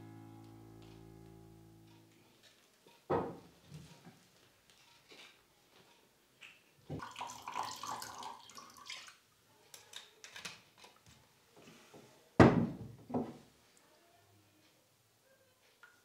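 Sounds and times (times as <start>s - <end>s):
liquor pouring into a glass: 7.0s - 9.2s.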